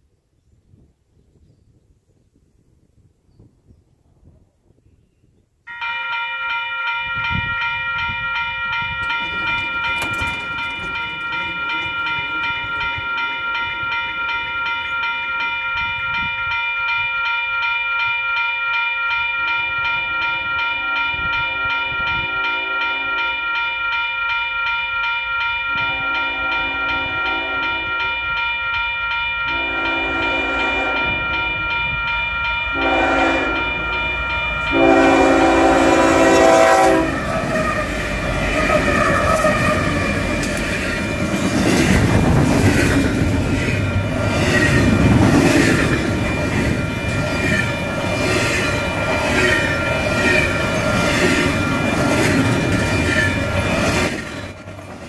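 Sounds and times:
crossing warning bell ringing: 0:05.7 - 0:55.0
locomotive horn blasts: 0:19.9 - 0:24.4, 0:25.7 - 0:40.6.

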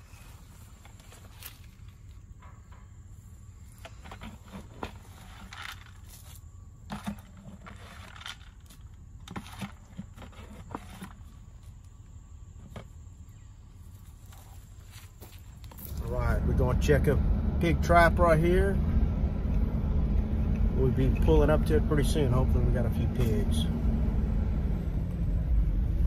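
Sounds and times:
steady low hum: 0:00.0 - 0:26.0
footsteps on sandy ground: 0:13.9 - 0:16.2.

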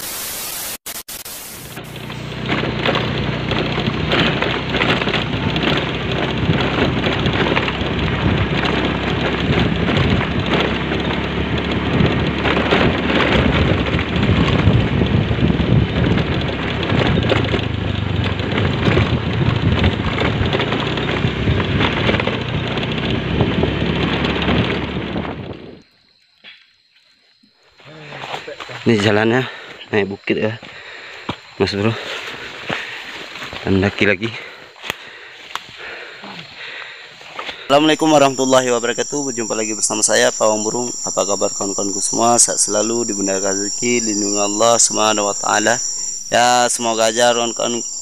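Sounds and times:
wind buffeting microphone: 0:02.7 - 0:25.8.

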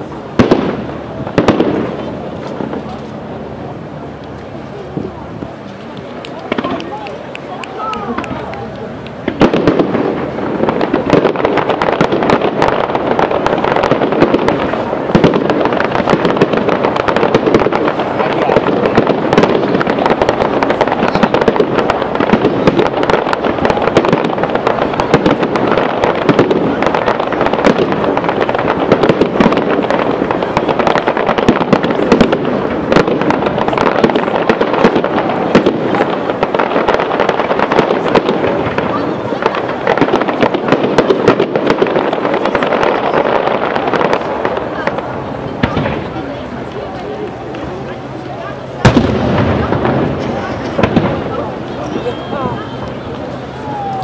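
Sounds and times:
fireworks crackling: 0:00.0 - 0:54.0
loud firework bangs: 0:00.0 - 0:54.0.

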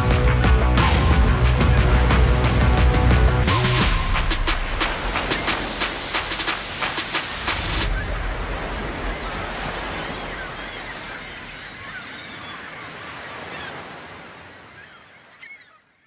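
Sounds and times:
ocean surf breaking on beach: 0:03.8 - 0:12.0.

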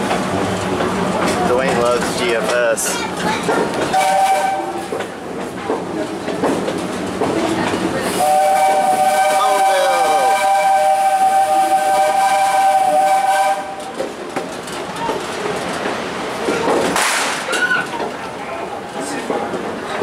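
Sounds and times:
train rumble and clatter: 0:00.0 - 0:20.0
steam locomotive whistle: 0:03.9 - 0:04.8, 0:08.2 - 0:13.8.

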